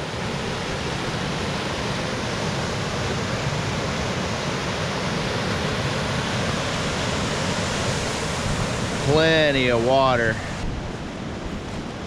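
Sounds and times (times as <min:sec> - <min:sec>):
creek rushing over spillway: 0:00.0 - 0:12.0.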